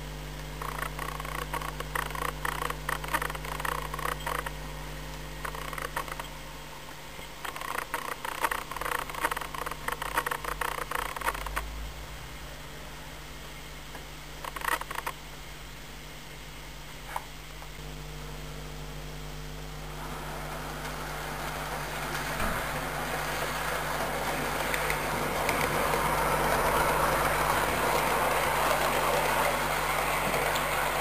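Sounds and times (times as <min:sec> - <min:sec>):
steady low hum: 0:00.0 - 0:31.0
model train wheels clicking: 0:00.6 - 0:04.5, 0:07.4 - 0:11.6, 0:19.9 - 0:31.0.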